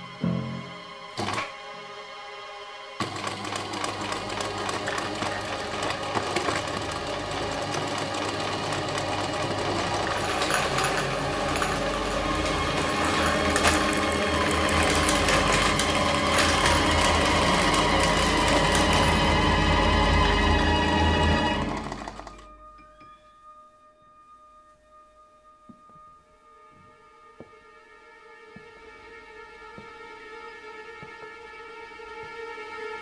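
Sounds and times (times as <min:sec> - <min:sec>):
sewing machine running: 0:03.0 - 0:22.5.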